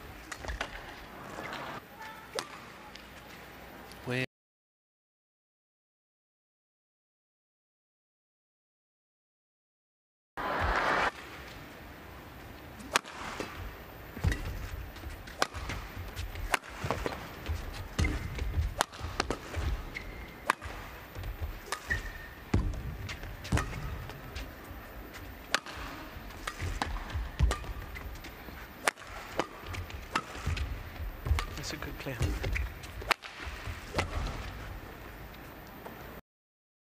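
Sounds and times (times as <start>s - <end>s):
racket hitting shuttlecock: 0.2s - 2.9s, 12.8s - 34.8s.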